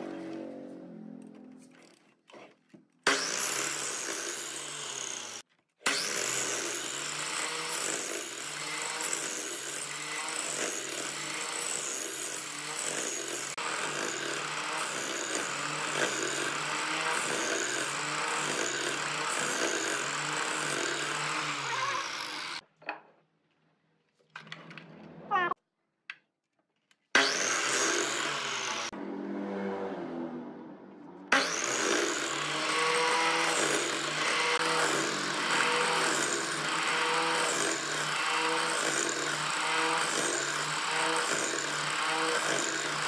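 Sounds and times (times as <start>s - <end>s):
power tool cutting wood: 3.0s - 22.6s, 27.1s - 30.1s, 31.3s - 43.0s.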